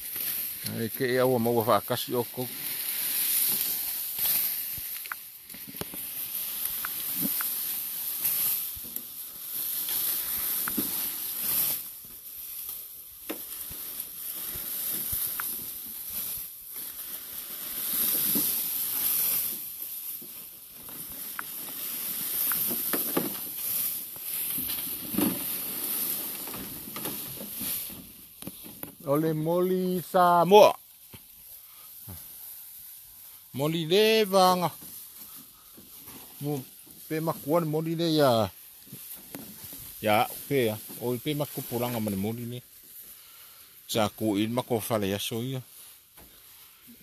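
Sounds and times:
cattle grazing crunches: 0.0 - 29.1
rustling of cut grass: 0.0 - 47.0.

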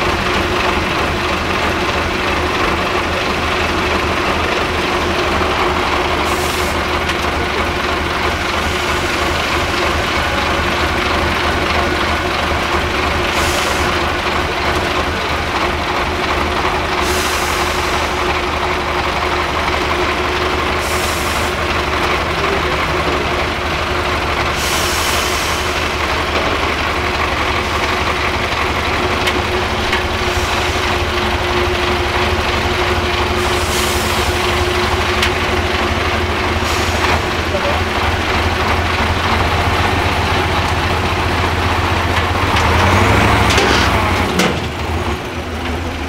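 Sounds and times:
diesel truck engine at low revs: 0.0 - 46.0
short air hisses: 24.6 - 25.8.

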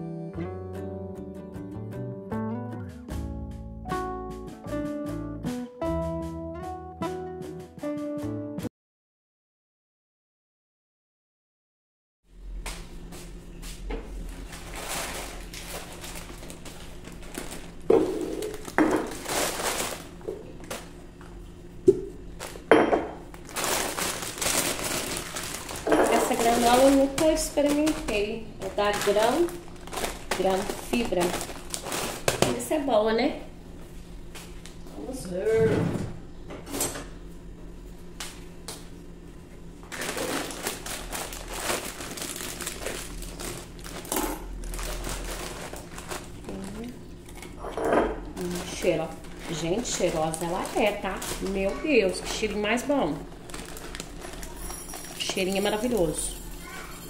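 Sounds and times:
plastic bag crinkling: 14.2 - 21.0, 23.4 - 32.8, 39.9 - 47.6, 48.4 - 56.7.

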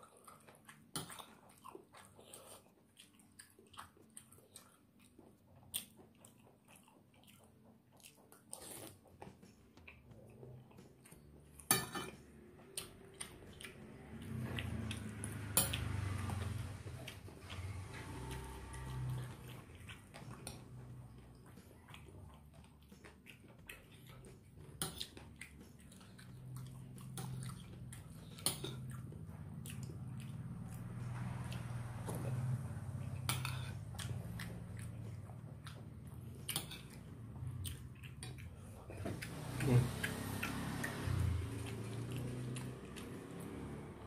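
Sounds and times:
chewing with wet mouth noises: 0.0 - 44.0
metal spoon clinking on plate: 11.7 - 12.2.

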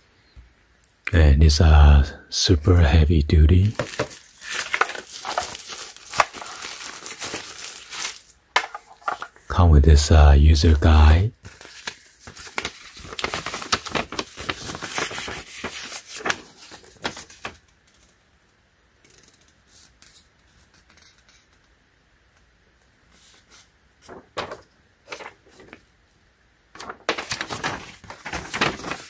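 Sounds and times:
paper rustling and crinkling: 3.6 - 9.3, 11.4 - 18.2, 23.1 - 25.9, 26.8 - 29.0.

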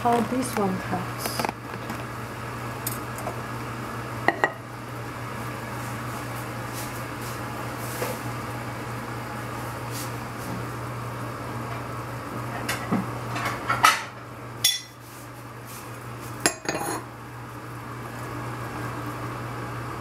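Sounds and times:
dishes and cutlery clattering: 16.5 - 17.0.

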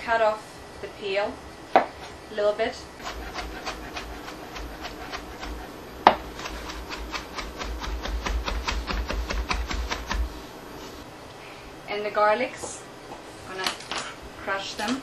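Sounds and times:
knife chopping on cutting board: 3.0 - 10.4.

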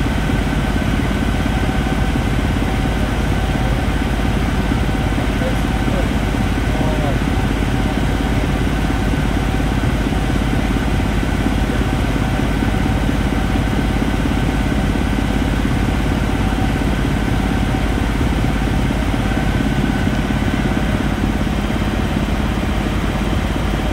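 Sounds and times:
aircraft engine drone in cockpit: 0.0 - 23.9
constant hums: 0.0 - 23.9.

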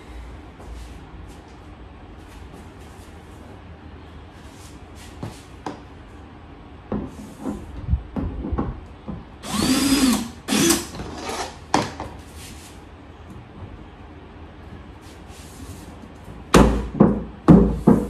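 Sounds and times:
cordless drill driving screw: 9.4 - 11.6.

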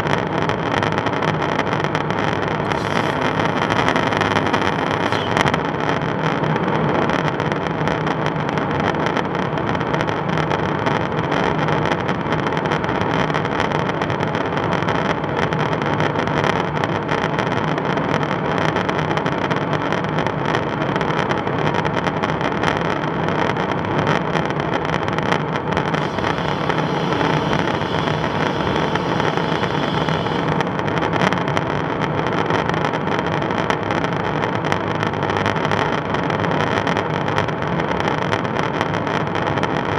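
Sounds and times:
aircraft engine and airflow drone: 2.5 - 6.1, 25.8 - 31.0.

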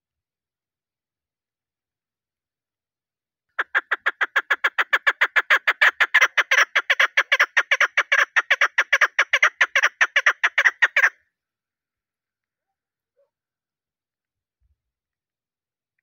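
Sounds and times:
partridge clucking call: 3.6 - 11.2.

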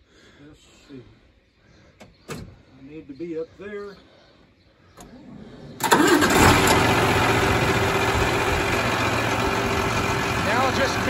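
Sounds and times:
tractor diesel engine starting: 5.0 - 11.0.

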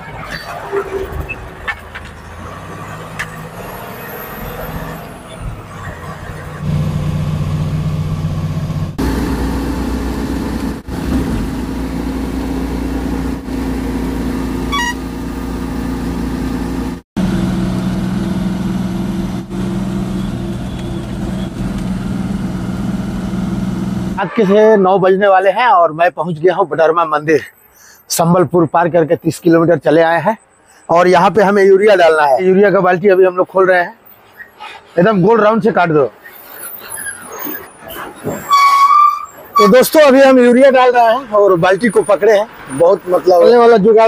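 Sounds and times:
diesel truck engine running: 0.0 - 24.2.

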